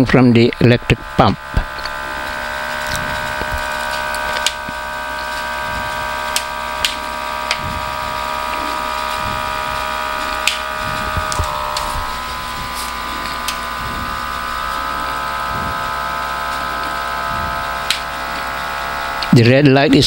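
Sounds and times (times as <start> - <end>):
vacuum pump whining: 0.0 - 20.0.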